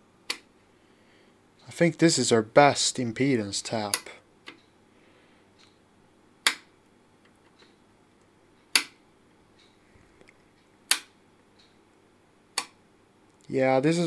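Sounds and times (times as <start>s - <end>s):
sharp clicks: 3.9s - 4.7s, 6.4s - 6.7s, 8.6s - 9.0s, 9.6s - 11.8s, 12.5s - 13.5s.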